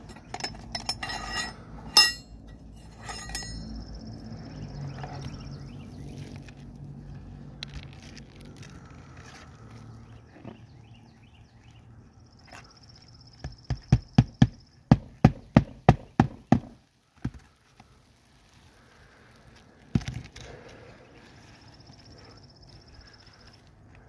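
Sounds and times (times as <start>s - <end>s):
hammer striking metal pry bar: 0.0s - 3.7s.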